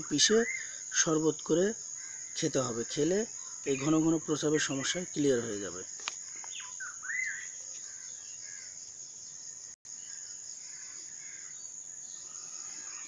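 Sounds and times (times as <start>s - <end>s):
high-pitched insect drone: 0.0s - 13.0s
faint bird calls: 6.2s - 8.8s, 10.0s - 13.0s.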